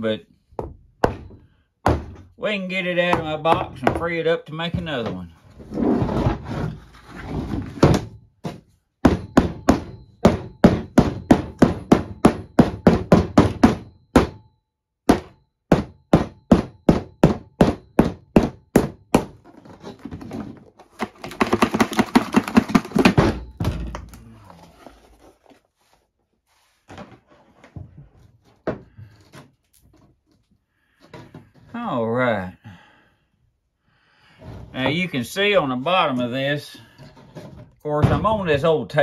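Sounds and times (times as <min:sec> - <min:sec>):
rough scraping noise: 0:05.4 - 0:07.8.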